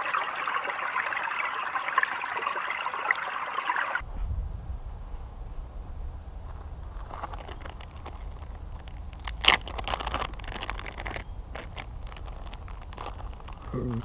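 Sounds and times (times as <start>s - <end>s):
steady low rumble: 4.0s - 14.0s
plastic package crinkling: 6.9s - 14.0s.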